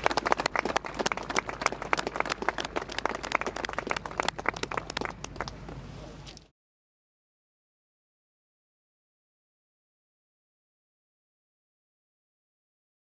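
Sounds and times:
crowd applauding: 0.0s - 5.6s.

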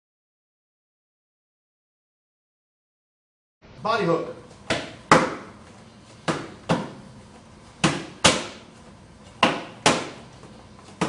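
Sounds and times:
focus mitts smacking: 4.7s - 5.6s, 6.2s - 7.0s, 7.8s - 8.7s, 9.4s - 11.0s.

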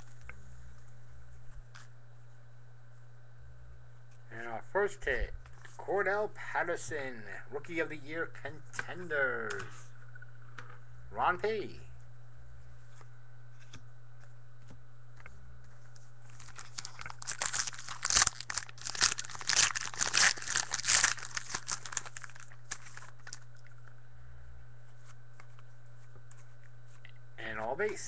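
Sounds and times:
card pack wrapper tearing: 16.3s - 23.5s.

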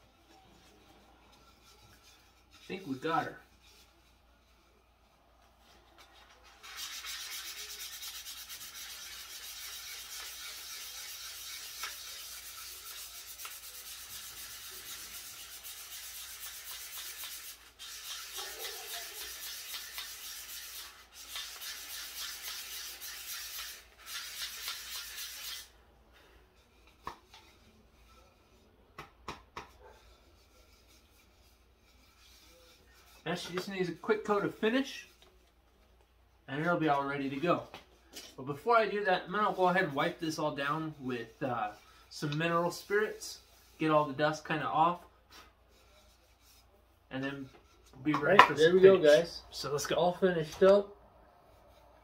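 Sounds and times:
sandpaper rubbing on wood: 6.4s - 25.7s, 29.8s - 35.1s.

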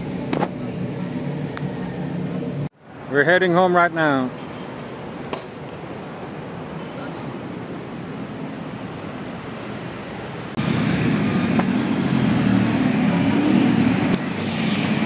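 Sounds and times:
cars passing: 0.0s - 15.0s
traffic rumble: 0.0s - 15.0s
motor scooters passing: 9.4s - 15.0s.

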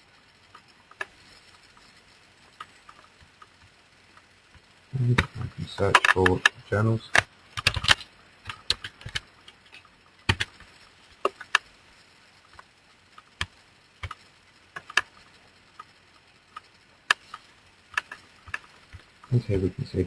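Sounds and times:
keyboard key presses: 7.2s - 9.2s, 10.3s - 10.6s.

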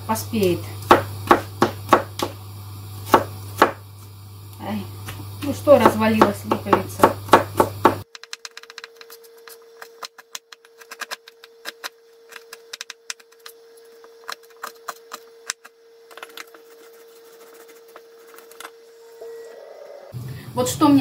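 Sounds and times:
faint steady hum: 0.0s - 21.0s
knife chopping on plastic board: 0.9s - 2.4s, 3.1s - 3.8s, 5.8s - 8.0s.

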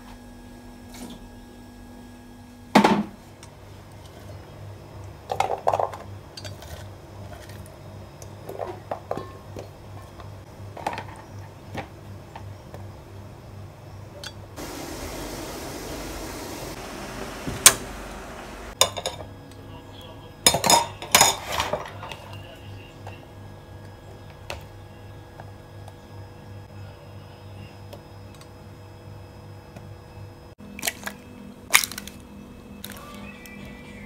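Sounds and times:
metal pans and utensils clinking: 5.3s - 7.6s, 8.5s - 10.2s, 20.5s - 22.2s
steady hiss: 14.6s - 18.8s.

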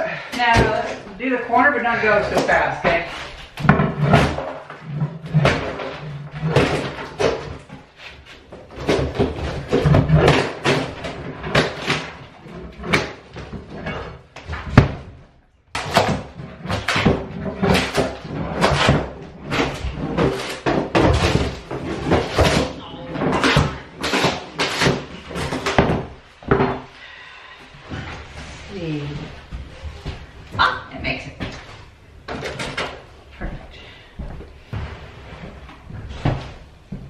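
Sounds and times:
floor covering being torn up: 3.6s - 13.3s, 15.7s - 26.1s.

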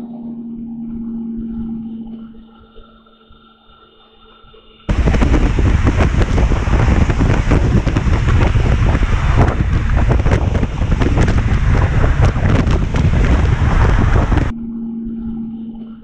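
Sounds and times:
steady hum: 0.0s - 16.0s
wind buffeting microphone: 4.9s - 14.5s.

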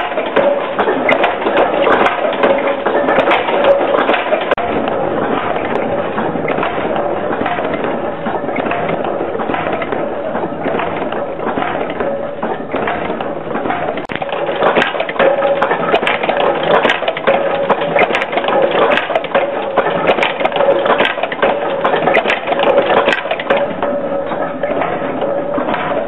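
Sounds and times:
machine drone: 0.0s - 26.0s
nail-making machines clattering: 0.0s - 26.0s.

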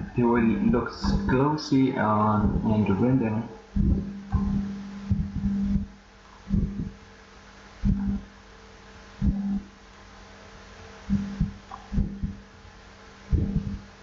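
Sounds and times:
dull low thumps: 0.0s - 1.5s, 2.2s - 7.1s, 7.8s - 8.4s, 9.1s - 9.8s, 11.0s - 12.5s, 13.2s - 14.0s
faint steady hum: 0.0s - 14.0s.

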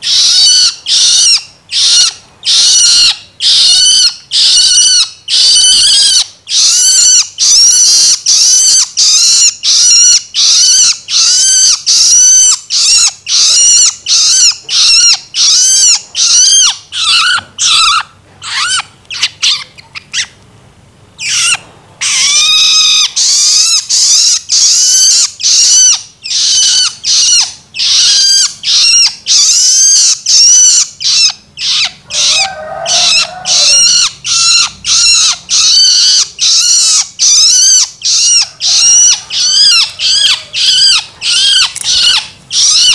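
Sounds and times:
lower bird call: 21.2s - 42.9s
young shrike begging calls: 30.7s - 42.9s.

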